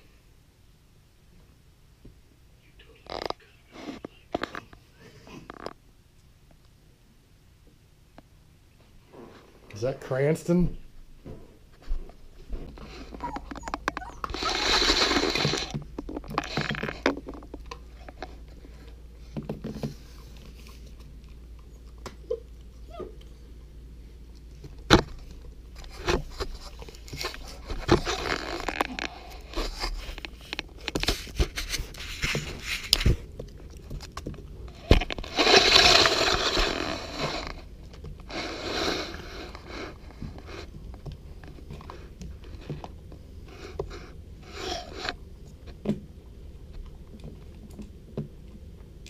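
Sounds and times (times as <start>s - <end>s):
dog crunching kibble: 12.7s - 45.8s
metal bowl scraping on tiles: 12.9s - 18.4s, 34.8s - 37.6s.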